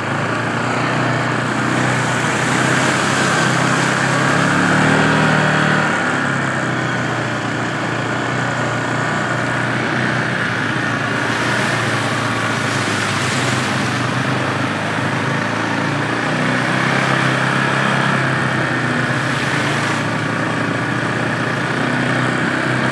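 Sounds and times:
quad bike engine running: 0.0s - 22.9s
wind: 0.0s - 22.9s.

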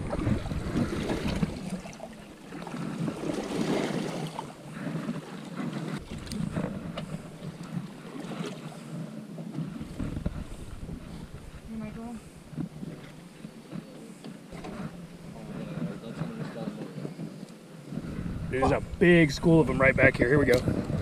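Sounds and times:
waves slapping against boat: 0.0s - 21.0s
wind on microphone: 0.0s - 21.0s.

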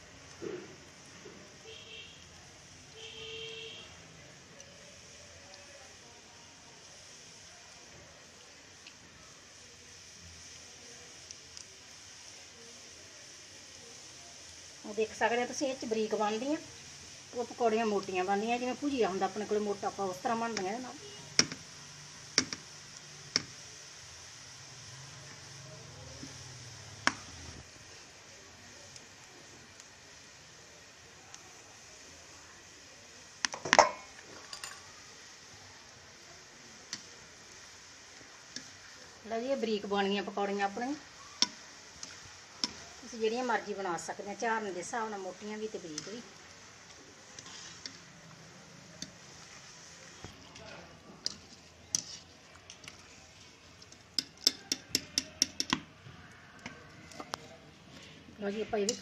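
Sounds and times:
metal utensils clinking on steel pan: 33.6s - 34.9s, 54.2s - 55.8s.

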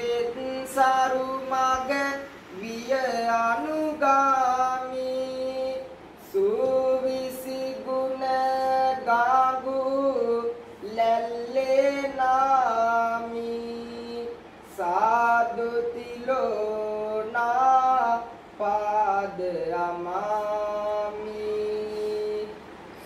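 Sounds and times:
person chanting verse: 0.0s - 22.6s.

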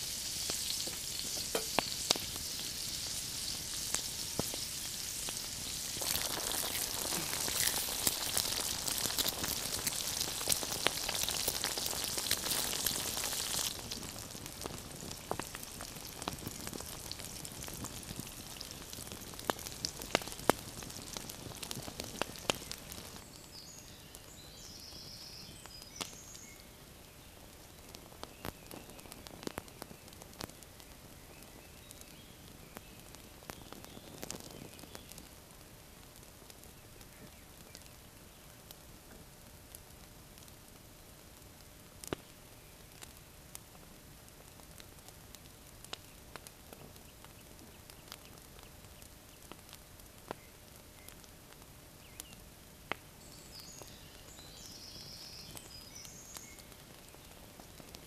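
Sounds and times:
meat and eggs sizzling in a pan: 0.0s - 58.0s.

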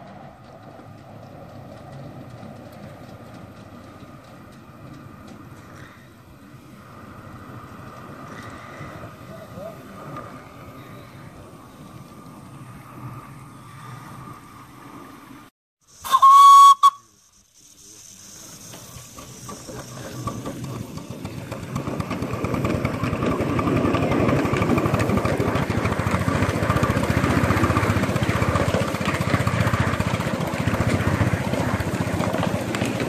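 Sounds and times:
train running on track: 0.0s - 33.0s
train whistle: 16.0s - 17.2s.

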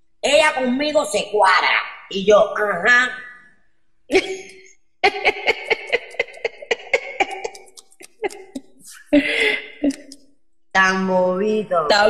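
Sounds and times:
woman laughing: 4.1s - 10.1s
breathy gasp: 9.2s - 9.8s.

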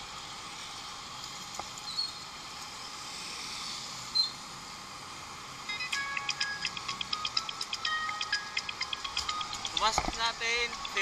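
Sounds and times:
outdoor background hiss: 0.0s - 11.0s
music with ticking beat: 5.7s - 11.0s.

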